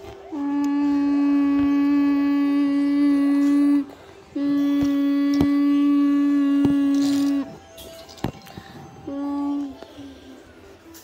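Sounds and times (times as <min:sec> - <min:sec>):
person humming a steady note: 0:00.0 - 0:11.0.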